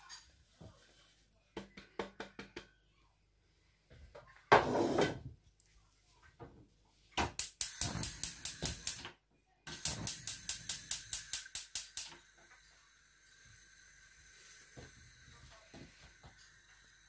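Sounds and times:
gas burner hiss: 7.3 - 17.0
gas igniter clicking rapidly: 7.4 - 9.1, 9.7 - 12.2.

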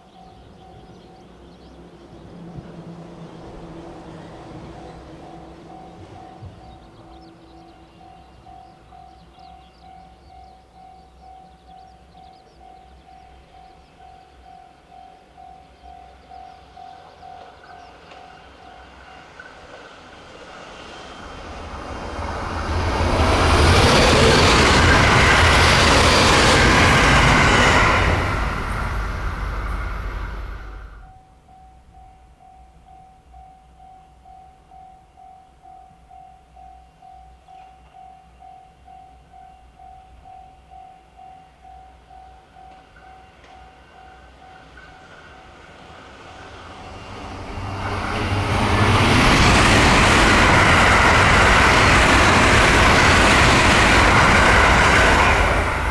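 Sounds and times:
electric train passing: 0.0 - 55.9
level crossing warning bell: 5.2 - 19.5, 31.0 - 45.7.

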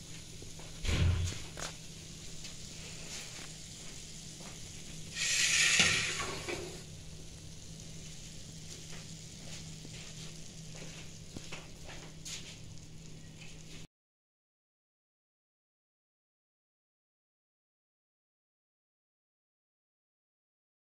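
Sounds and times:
food sizzling in a frying pan: 0.0 - 13.9
low steady hum: 0.0 - 13.9.

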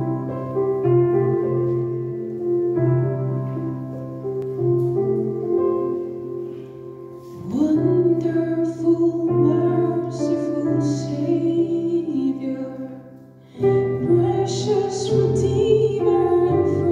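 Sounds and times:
keyboard playing held chords: 0.0 - 16.9
woman singing: 7.4 - 16.9.

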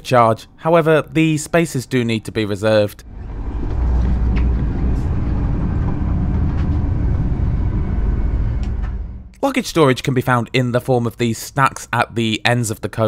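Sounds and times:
train rumbling along track: 3.0 - 9.5.

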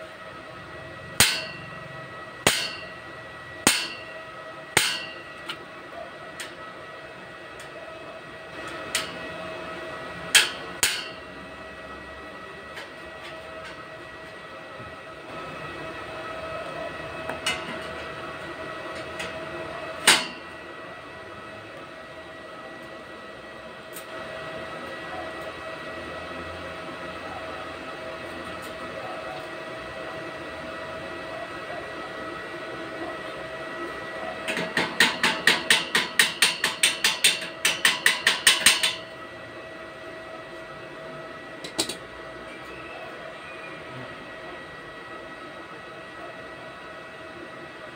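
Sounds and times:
steady background hum: 0.0 - 47.9
sharp metal knock: 1.2 - 1.6, 2.5 - 2.9, 3.7 - 4.0, 4.8 - 5.2.

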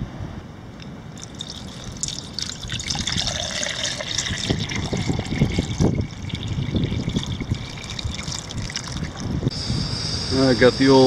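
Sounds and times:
water pouring into metal can: 1.2 - 9.4
wind buffeting microphone: 1.4 - 10.3.

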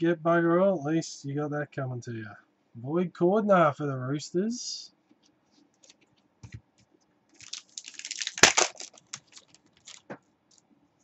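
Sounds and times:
foil wrapper crinkling: 7.4 - 10.1.

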